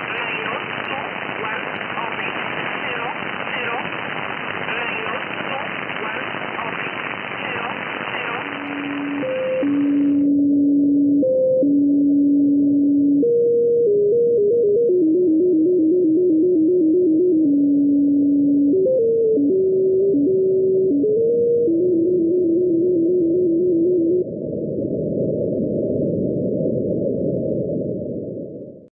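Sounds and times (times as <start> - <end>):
radio static hiss: 0.0 - 10.2
data tone stepping between pitches: 8.2 - 24.2.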